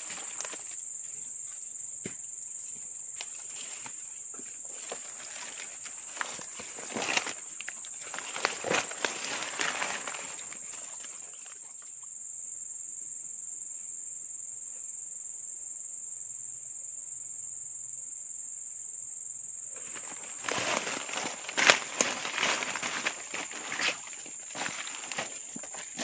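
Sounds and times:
rustling and crackling: 3.1s - 11.6s, 19.8s - 26.0s.

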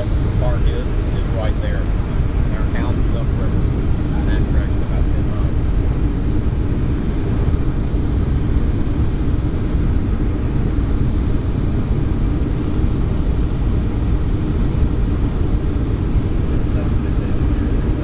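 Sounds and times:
airplane cabin engine rumble: 0.0s - 18.0s.

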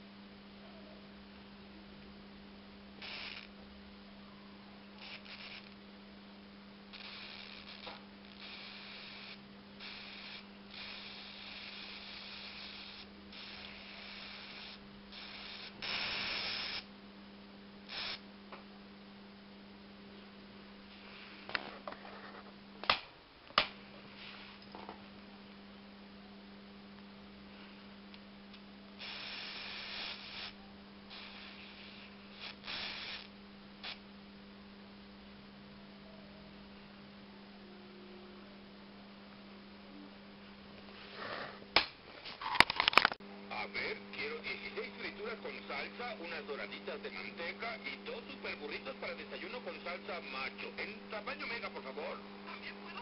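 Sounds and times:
low electrical hum: 0.0s - 53.0s
electric sparks sizzling: 3.0s - 3.5s, 5.0s - 5.8s, 6.9s - 16.9s, 17.9s - 18.2s, 29.0s - 34.0s
sharp electrical snaps: 3.0s - 3.5s, 5.0s - 5.8s, 6.9s - 16.9s, 17.9s - 18.2s, 22.8s - 24.5s, 29.0s - 34.0s.

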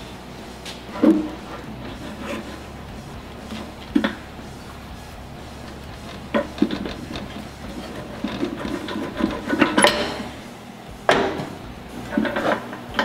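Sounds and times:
metal axle clinking and rattling: 0.0s - 10.5s, 11.1s - 13.0s
sharp metal clank: 9.5s - 10.4s.

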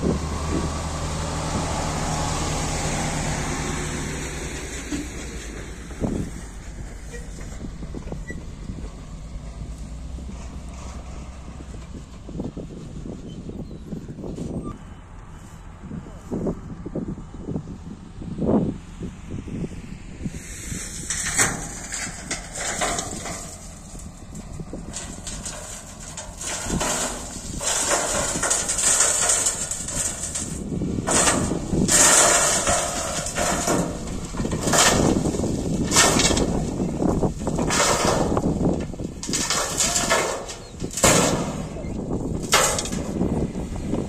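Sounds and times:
grader clattering and scraping: 0.0s - 16.5s, 20.2s - 44.0s
low engine rumble: 0.0s - 44.0s.

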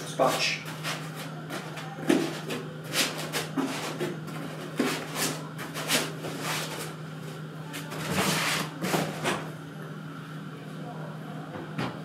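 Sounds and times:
foam scraping and rustling: 2.3s - 7.0s.

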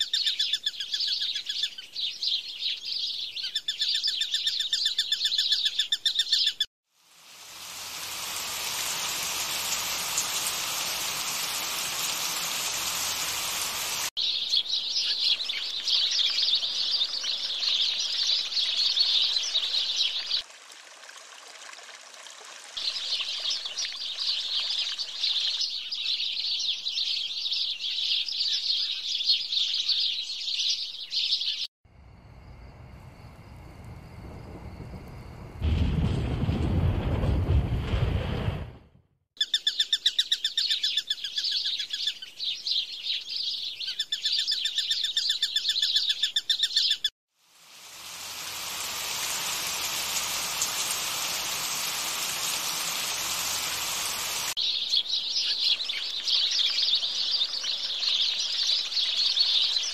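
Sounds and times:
birds chirping and trilling: 0.0s - 6.7s, 8.7s - 20.4s, 22.8s - 31.7s, 39.4s - 47.1s, 48.4s - 59.9s
steady rushing hiss: 7.0s - 14.2s, 47.5s - 54.6s.

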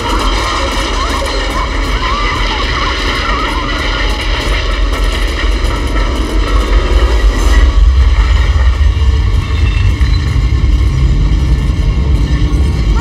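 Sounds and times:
loud deep rumble: 0.0s - 13.0s
steady droning tones: 0.0s - 13.0s.

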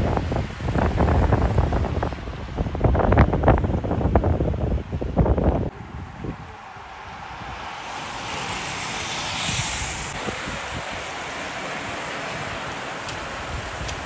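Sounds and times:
wind buffeting microphone: 0.0s - 14.0s
bicycle tyres hissing on tarmac: 5.8s - 14.0s.

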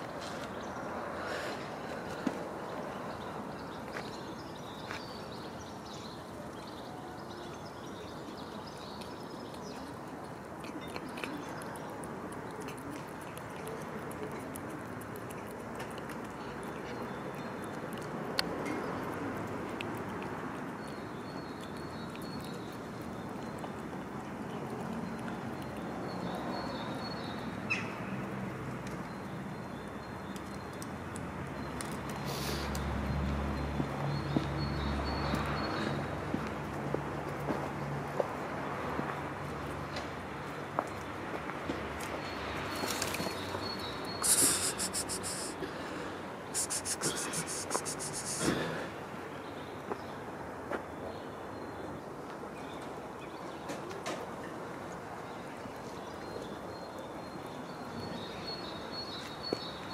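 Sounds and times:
small birds chirping: 0.0s - 28.2s, 42.0s - 45.7s, 46.4s - 48.6s
outdoor background noise: 0.0s - 59.9s
street ambience hum: 0.0s - 59.9s
cat chewing and licking: 8.5s - 27.5s, 44.2s - 45.6s, 46.6s - 48.7s.

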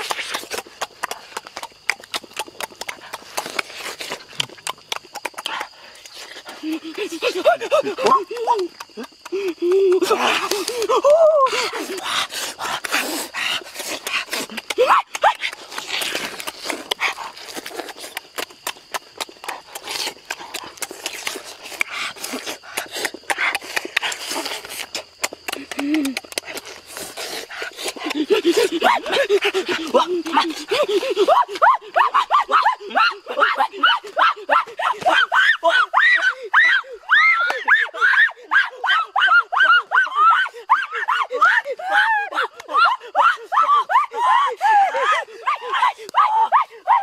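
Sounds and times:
breathy noises: 0.0s - 32.0s
people chewing with wet smacks: 0.0s - 32.0s.

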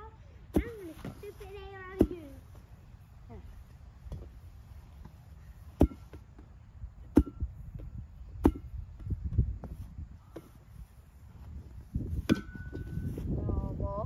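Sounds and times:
wind on microphone: 6.7s - 14.0s.

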